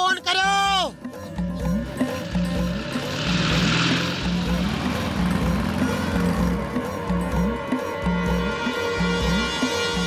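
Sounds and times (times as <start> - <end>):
background music with sliding bass: 0.0 - 10.0.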